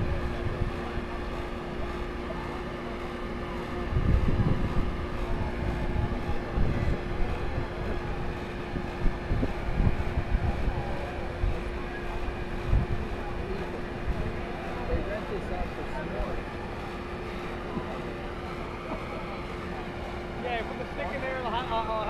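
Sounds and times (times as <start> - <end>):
wind buffeting microphone: 0.0 - 18.8
machine hum with low rumble: 0.0 - 22.0.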